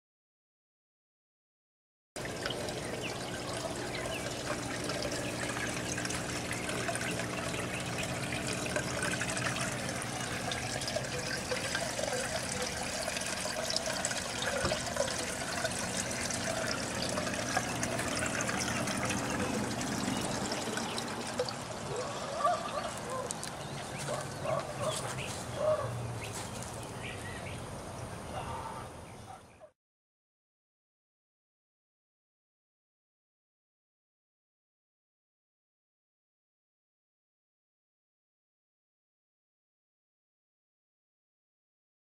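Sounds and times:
water trickling and splashing: 2.2s - 28.0s
low steady hum: 2.2s - 28.6s.

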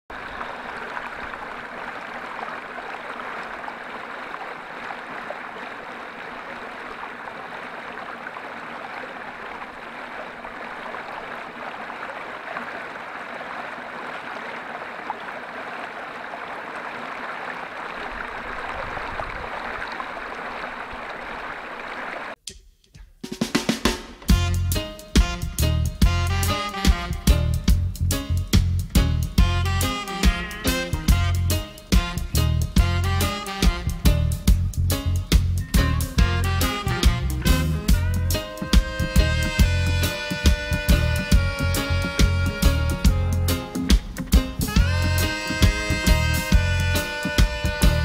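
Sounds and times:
stream babbling over stones: 0.1s - 22.4s.

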